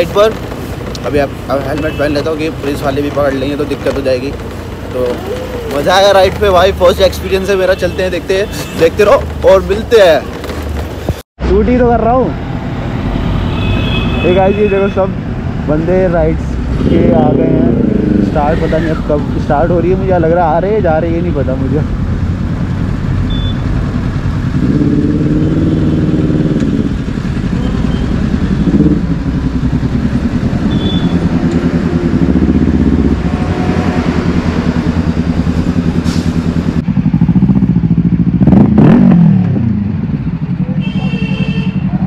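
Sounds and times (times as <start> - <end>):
motorcycle engines idling: 0.0 - 11.0, 39.4 - 42.0
motorcycle throttle blips: 24.6 - 33.5.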